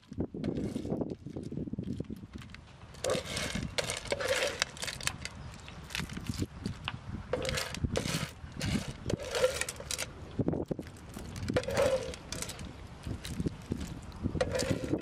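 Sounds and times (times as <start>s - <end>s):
spoon scraping: 3.0s - 5.2s, 7.4s - 10.1s, 11.2s - 15.0s.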